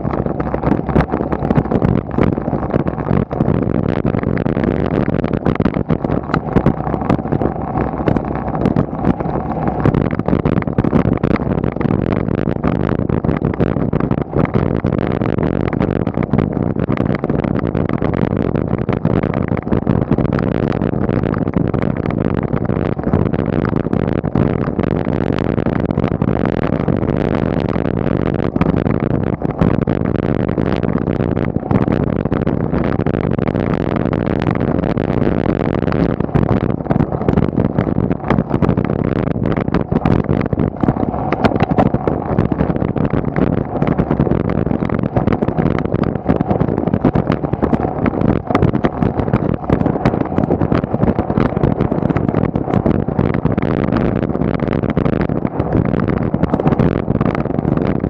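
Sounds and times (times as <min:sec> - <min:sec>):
bicycle tyre and wind noise: 0:00.0 - 0:58.0.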